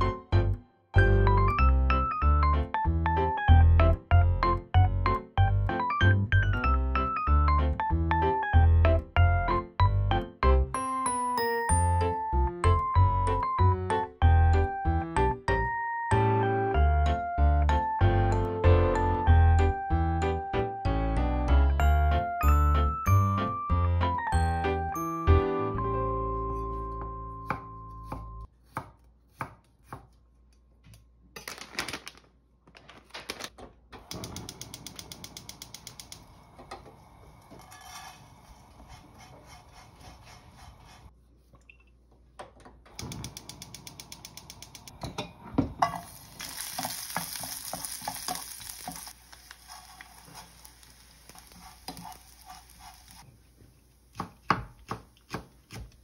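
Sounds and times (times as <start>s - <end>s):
knife chopping on wooden board: 27.4s - 30.2s, 54.1s - 56.0s
high sizzling: 45.8s - 54.0s
dried fish rattling in frying pan: 46.0s - 53.2s.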